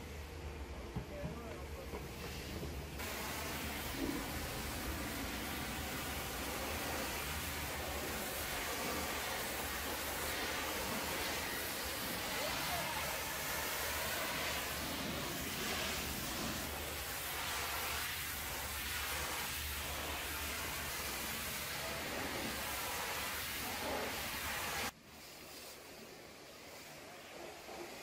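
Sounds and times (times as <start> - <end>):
pressure washer jet on metal: 2.1 - 28.0.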